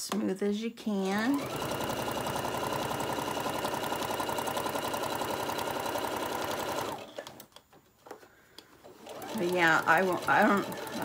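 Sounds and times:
sewing machine stitching: 1.2 - 7.4, 8.9 - 11.0.

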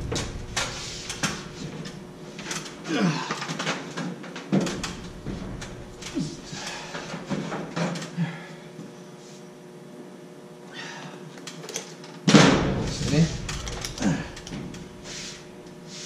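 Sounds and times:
steady hum: 0.0 - 16.0
person grunting: 2.8 - 3.5, 6.1 - 7.0, 13.2 - 14.6.

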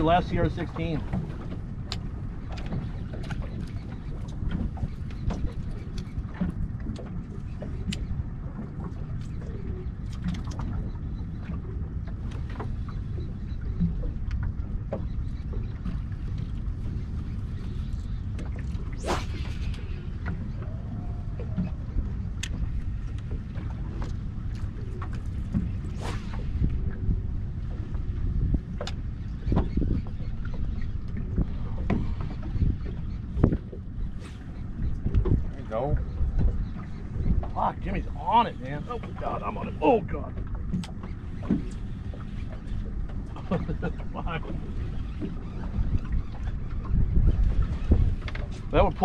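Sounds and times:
water around boat: 0.0 - 49.0
wind rumble on microphone: 0.0 - 49.0
brief swish: 18.9 - 19.8, 25.9 - 26.5.

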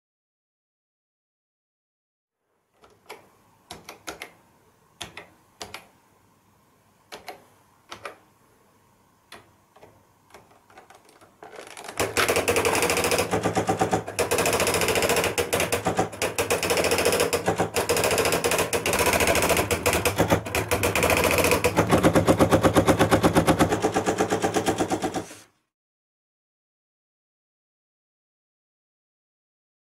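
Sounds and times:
typewriter printing rattle: 10.4 - 25.4.

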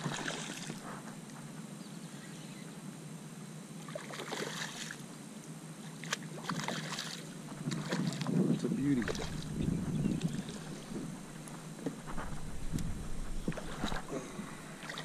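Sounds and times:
fish splashing in water: 0.0 - 0.8, 3.8 - 5.0, 6.0 - 8.3, 8.9 - 15.0
steady low hum: 0.0 - 15.0.

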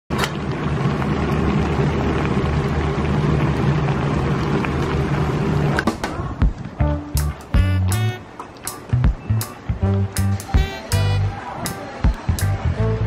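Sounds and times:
stew boiling hard: 0.1 - 7.8.

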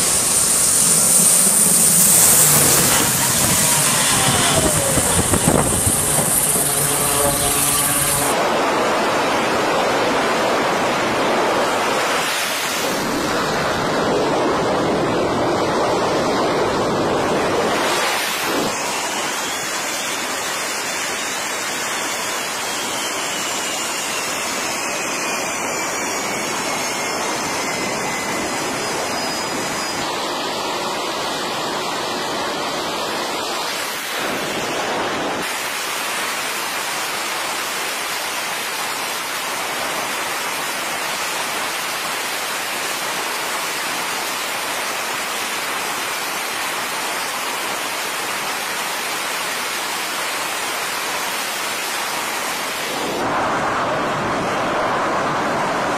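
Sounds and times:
faint falling whine: 0.0 - 8.4
jet engines roaring: 0.0 - 20.3, 22.3 - 36.8.

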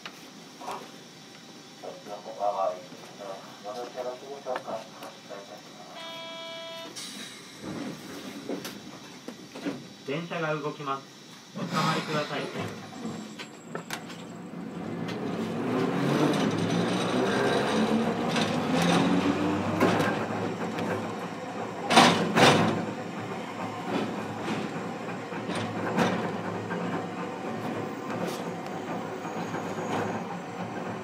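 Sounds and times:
tram motor hum rising: 12.5 - 31.0.

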